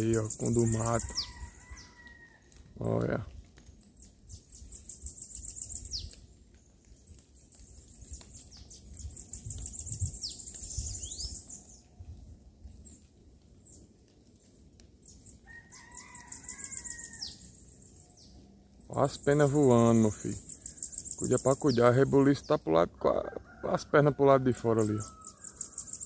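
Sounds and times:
birds singing high buzzy trills: 0:00.0 - 0:02.0, 0:03.8 - 0:06.2, 0:07.4 - 0:11.8, 0:15.0 - 0:22.8, 0:24.6 - 0:26.0.

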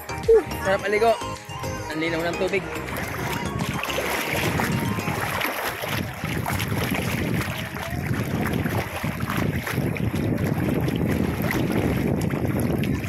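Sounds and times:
wind buffeting microphone: 0:02.8 - 0:13.0.

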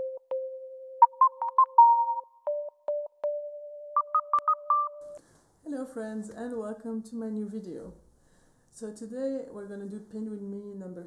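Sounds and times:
synthesizer jingle: 0:00.0 - 0:05.2.

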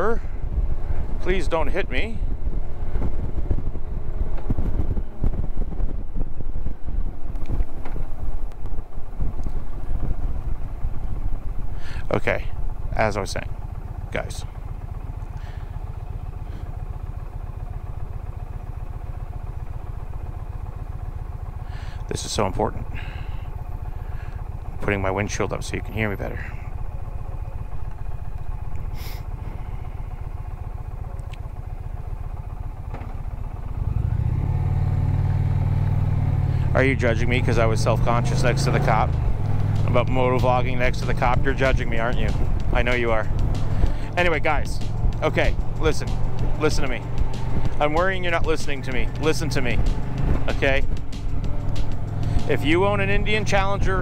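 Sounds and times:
wind rushing over microphone: 0:00.0 - 0:11.8
motorcycle engine running: 0:00.0 - 0:54.0.

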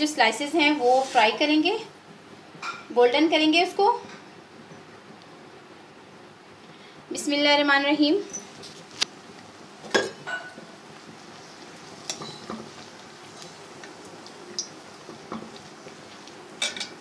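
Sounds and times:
bread sizzling in a pan: 0:00.0 - 0:17.0
utensil clinking against pan: 0:16.6 - 0:17.0.

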